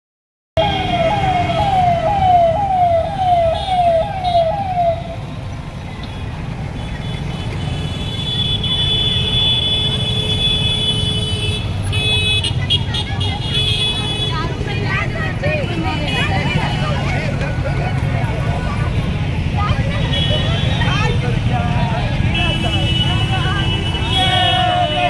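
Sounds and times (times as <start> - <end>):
vehicle siren wailing: 0.6 - 5.4
low rumble of traffic: 0.6 - 25.0.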